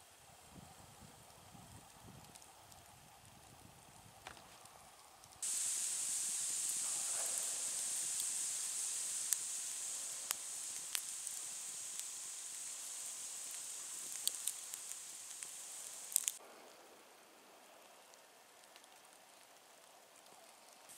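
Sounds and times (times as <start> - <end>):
campfire hissing: 0.0 - 16.4
burning logs crackling and popping: 1.2 - 16.4, 18.5 - 20.9.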